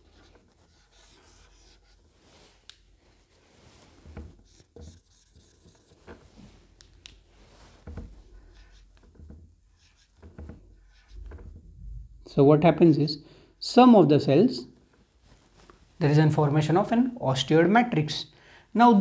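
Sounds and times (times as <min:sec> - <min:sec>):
marker pen on whiteboard: 0:00.0 - 0:02.8, 0:03.9 - 0:11.6.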